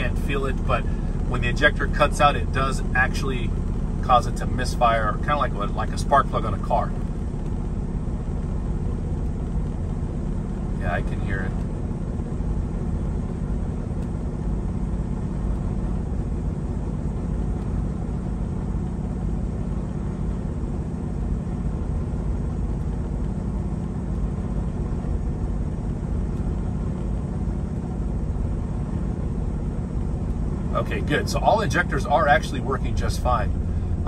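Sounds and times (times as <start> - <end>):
faint engine misfire: 0.0 - 12.9, 22.5 - 34.0
diesel engine idling: 0.0 - 34.0.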